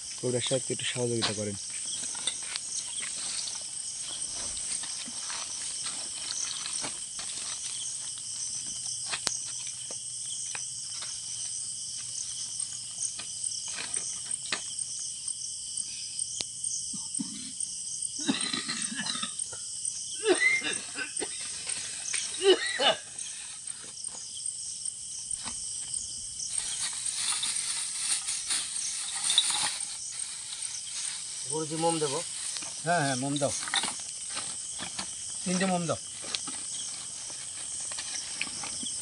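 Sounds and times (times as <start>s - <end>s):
crickets trilling: 0.0s - 39.0s
handling clicks and rustles: 26.5s - 35.1s
person speaking: 31.4s - 33.7s.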